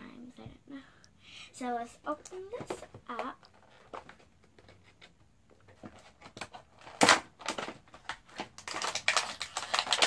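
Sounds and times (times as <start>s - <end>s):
plastic packaging tearing and crinkling: 6.1s - 10.0s.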